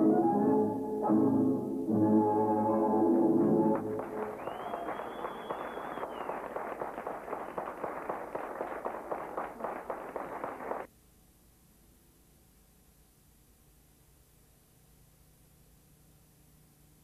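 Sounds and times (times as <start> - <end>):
audience clapping: 3.7 - 10.9
faint high whistle: 4.2 - 6.7.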